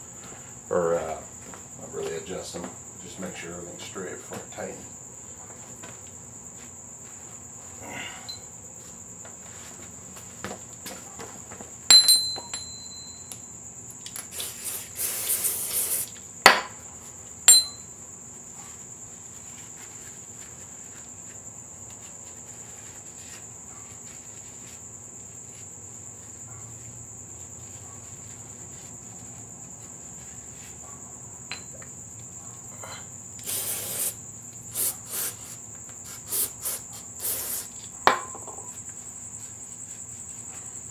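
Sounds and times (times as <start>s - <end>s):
steady high-pitched tone: 17.5s - 18.0s.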